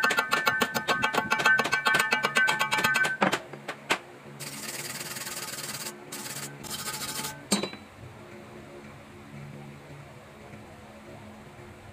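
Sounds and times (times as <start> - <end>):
wire brush scrubbing steel: 4.4 - 7.4.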